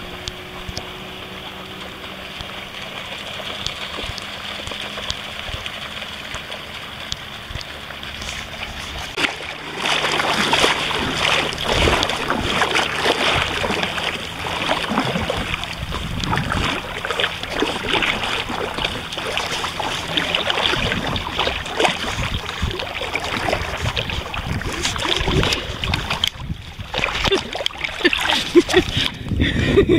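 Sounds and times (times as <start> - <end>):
sea water splashing: 0.0 - 29.9.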